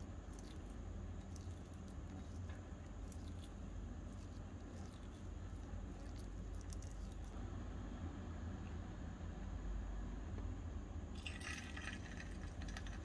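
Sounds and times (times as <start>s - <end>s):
low steady hum: 0.0s - 13.0s
small clicks and ticks: 11.2s - 13.0s.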